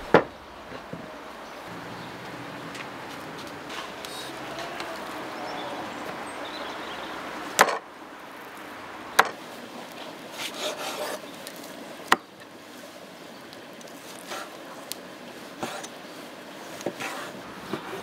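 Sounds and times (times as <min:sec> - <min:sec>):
meat scraping and rubbing: 0:10.3 - 0:11.7, 0:16.9 - 0:18.0.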